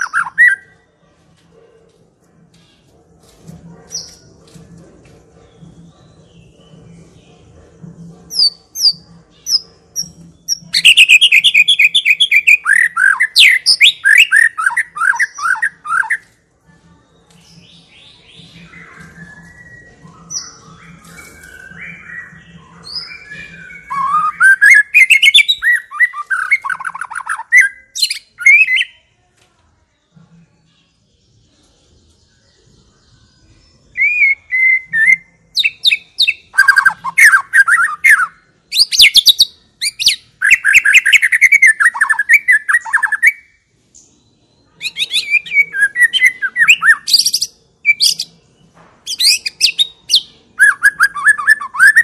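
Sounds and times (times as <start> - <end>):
songbird whistling: 18.2 - 28.9, 33.9 - 43.5, 49.1 - 52.0.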